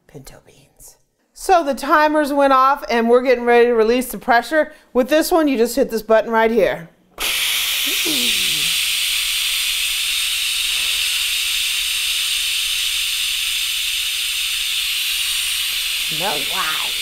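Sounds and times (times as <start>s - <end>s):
steam hissing from pressure cooker: 7.2s - 17.0s.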